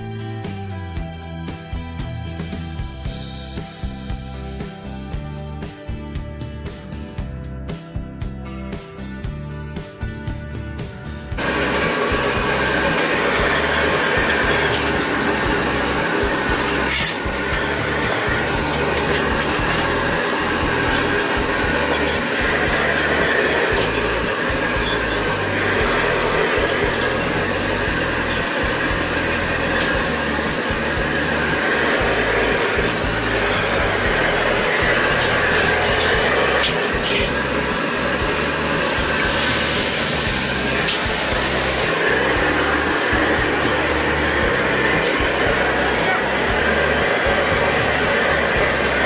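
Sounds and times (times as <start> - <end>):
gas wok burner roaring: 11.2 - 49.0.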